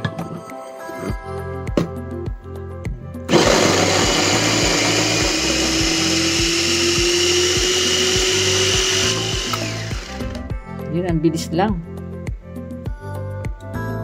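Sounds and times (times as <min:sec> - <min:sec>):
electric food chopper running: 0:03.3 - 0:10.5.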